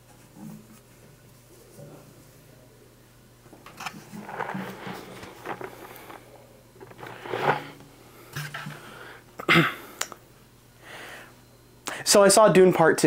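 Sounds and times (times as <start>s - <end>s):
hand rummaging in plastic bucket: 3.6s - 7.8s
popcorn being chewed: 4.2s - 6.2s.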